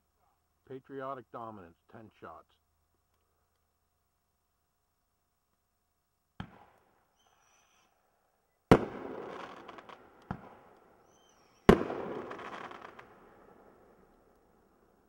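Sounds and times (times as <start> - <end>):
crackling firework tail: 8.7 - 15.0.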